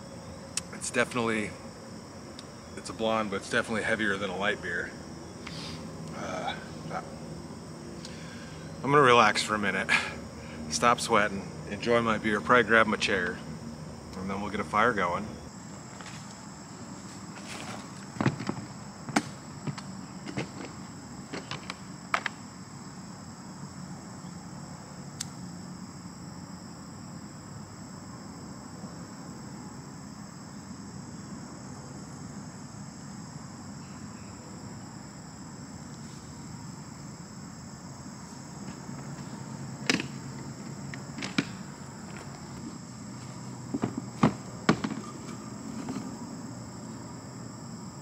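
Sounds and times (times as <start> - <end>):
background hiss: 0.0 - 48.0
crickets chirping: 0.0 - 48.0.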